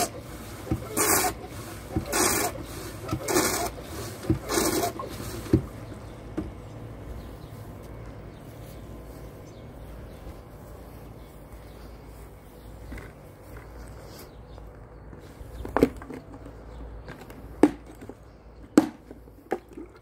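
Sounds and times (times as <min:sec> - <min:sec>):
hand suction pump strokes: 0:00.0 - 0:05.9.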